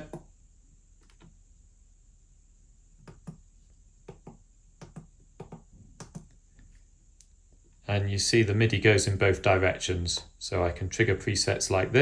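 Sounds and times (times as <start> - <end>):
fingers tapping controller pads: 4.0 - 6.3.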